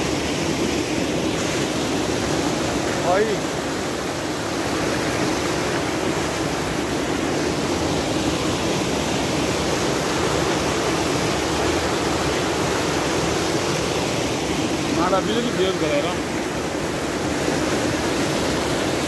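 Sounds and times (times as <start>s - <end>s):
water rushing over rocky waterfall: 0.0s - 19.0s.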